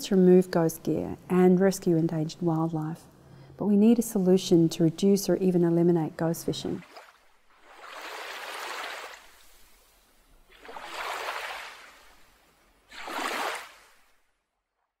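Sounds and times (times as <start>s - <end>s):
ocean waves washing: 6.6s - 14.2s.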